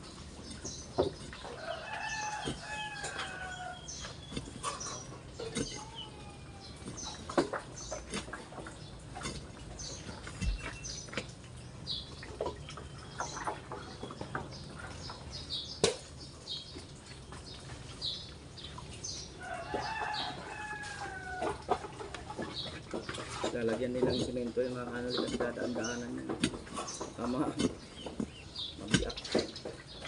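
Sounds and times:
small birds chirping: 0.0s - 30.0s
steel bar striking soil: 4.0s - 6.0s, 9.2s - 11.0s.

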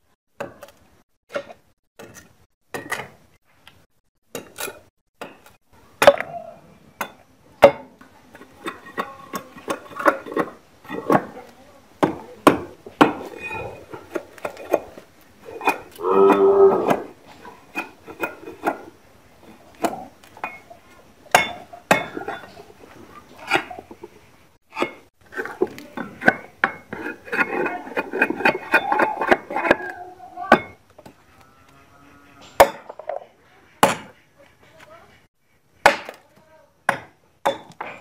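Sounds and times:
blade chopping wood: 35.8s - 36.2s.

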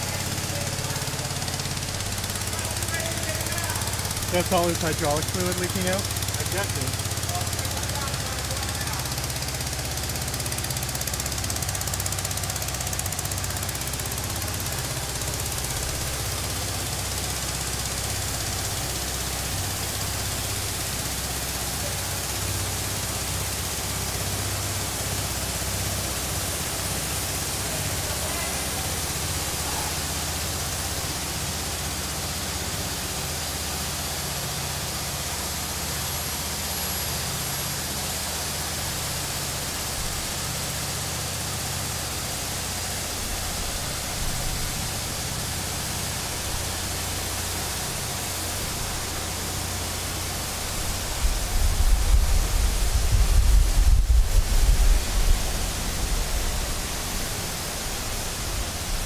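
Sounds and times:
hydraulic engine hiss and hum: 0.0s - 59.0s
loud low rumbling: 50.0s - 59.0s.

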